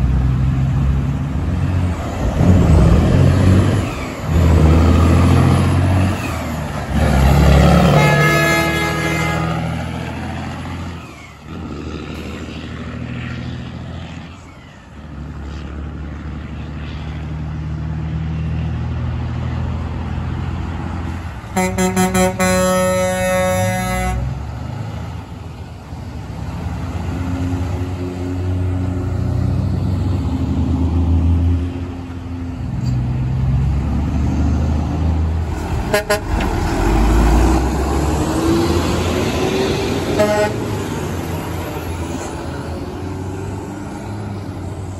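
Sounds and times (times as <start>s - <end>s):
diesel truck engines running: 0.0s - 44.9s
truck air horn blasts: 7.8s - 9.8s, 21.5s - 24.4s, 35.6s - 37.0s, 40.1s - 40.8s.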